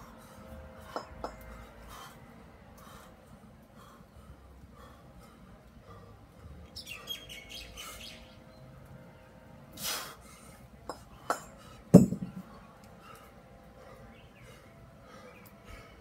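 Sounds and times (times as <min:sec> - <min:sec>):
kettlebells clunking on concrete: 0:00.8 - 0:01.6, 0:10.8 - 0:12.6.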